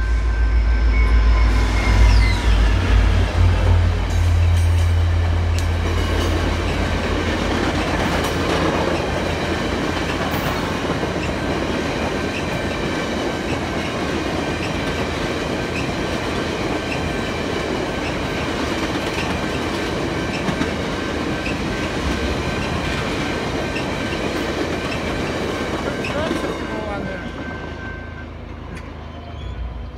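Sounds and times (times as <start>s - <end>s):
diesel locomotive rumble: 0.0s - 29.9s
train wheels clattering over rail joints: 5.6s - 26.5s.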